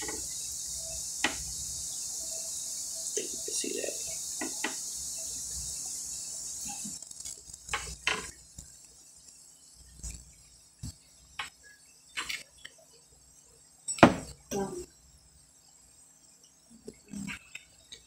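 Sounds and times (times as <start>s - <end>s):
steady high hiss: 0.0s - 18.0s.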